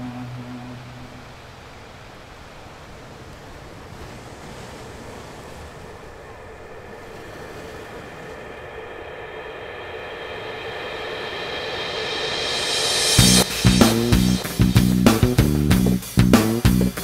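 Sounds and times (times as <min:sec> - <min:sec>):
held musical tones: 0:00.0 - 0:01.5, 0:06.2 - 0:17.0
surf-like rush of noise: 0:00.0 - 0:15.4.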